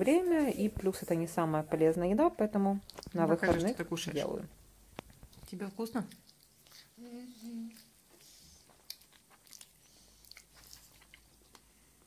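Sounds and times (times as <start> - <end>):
chewing mouth noises: 2.8 - 3.3, 5.1 - 11.8
child humming: 7.0 - 7.9.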